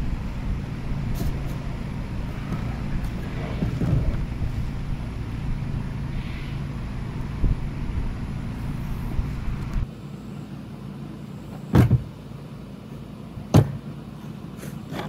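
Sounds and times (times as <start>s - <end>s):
steady rushing noise: 0.0s - 9.9s.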